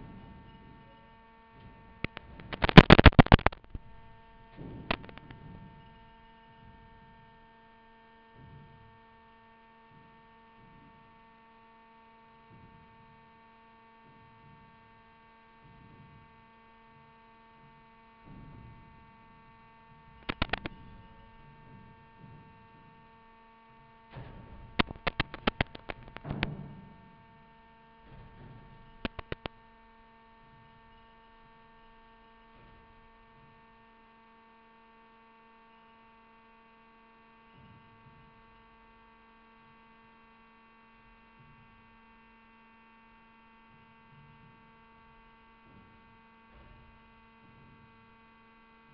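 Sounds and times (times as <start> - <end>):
electrical hum: 2.0 - 5.6, 20.1 - 21.5, 24.6 - 26.7, 28.7 - 29.5
sharp clicks: 2.1 - 4.0, 20.2 - 20.8, 24.8 - 26.4, 29.0 - 29.5.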